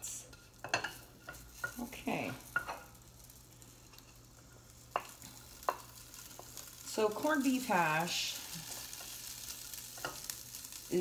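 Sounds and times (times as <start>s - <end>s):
food sizzling: 0.0s - 11.0s
spatula tapping pan: 0.3s - 3.0s, 4.9s - 6.8s, 8.7s - 10.4s
spatula scraping skillet: 0.3s - 11.0s.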